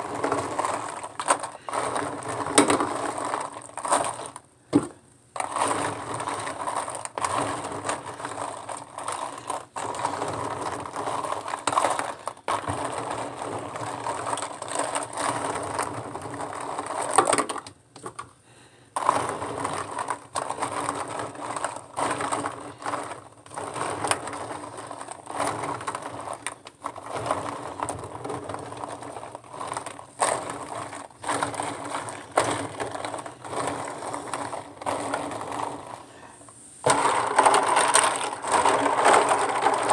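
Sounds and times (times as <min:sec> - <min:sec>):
plastic tubes clattering: 0:00.0 - 0:18.3, 0:18.9 - 0:39.9.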